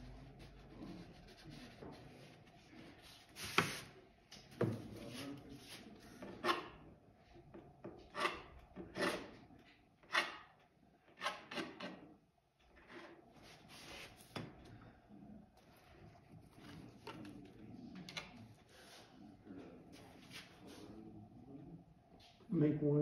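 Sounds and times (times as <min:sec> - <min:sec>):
paintbrush scratching paper: 0:00.0 - 0:03.9.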